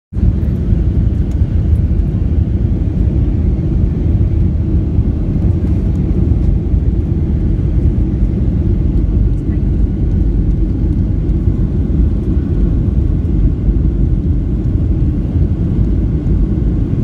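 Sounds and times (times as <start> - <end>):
airliner cabin rumble: 0.1 - 17.0.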